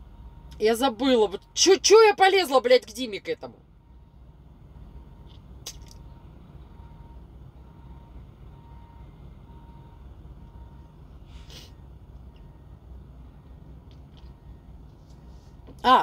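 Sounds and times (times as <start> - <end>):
truck engine idling: 0.0 - 16.0
faint repeating beep: 6.0 - 11.0
person sniffing: 11.3 - 11.8.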